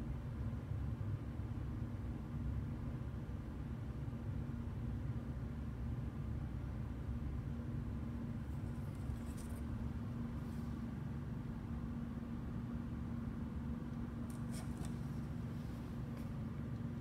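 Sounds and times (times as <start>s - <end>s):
faint constant tone: 0.0s - 17.0s
low room hum: 0.0s - 17.0s
soft handling rustles: 8.4s - 11.0s, 14.2s - 16.8s.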